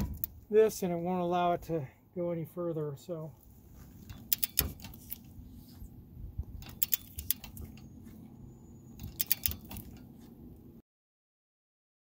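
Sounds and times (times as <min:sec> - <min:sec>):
ratchet wrench clicking: 0:04.1 - 0:05.3, 0:06.6 - 0:07.6, 0:09.0 - 0:10.0.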